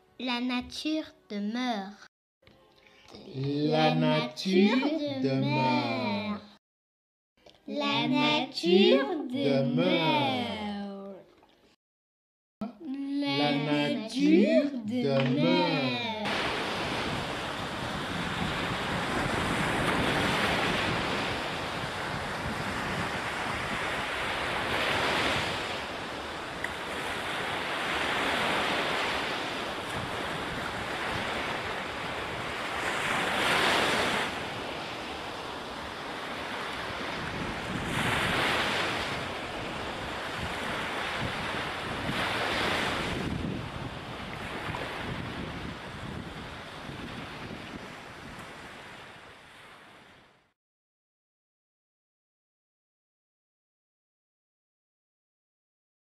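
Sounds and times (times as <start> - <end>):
ocean waves breaking: 3.3 - 6.6, 7.7 - 10.9, 13.2 - 50.4.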